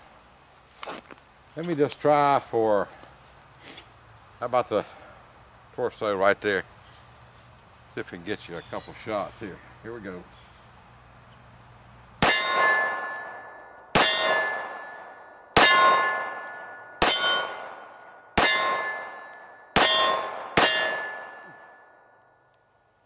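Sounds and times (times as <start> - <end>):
pistol shots: 12.2 - 17.8, 18.4 - 21.8
steel target plate ringing: 12.2 - 22.2.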